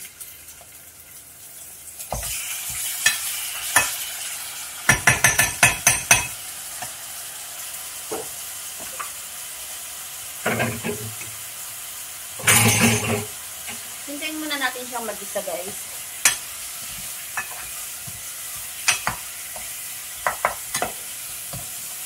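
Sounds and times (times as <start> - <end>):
chicken sizzling in frying pan: 0.0 - 22.0.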